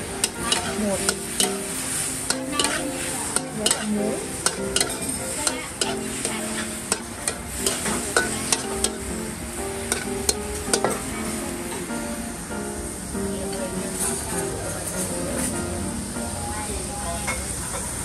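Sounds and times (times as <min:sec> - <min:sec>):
vegetables sizzling in wok: 0:00.0 - 0:18.0
metal spatula scraping wok: 0:00.1 - 0:09.1, 0:09.9 - 0:11.0.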